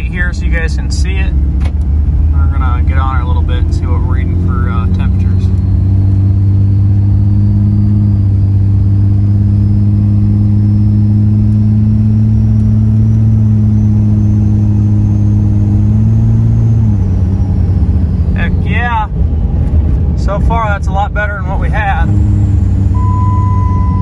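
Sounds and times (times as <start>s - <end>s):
diesel engine accelerating: 0.0s - 24.0s
turbocharger whistle: 4.7s - 18.8s, 22.1s - 24.0s.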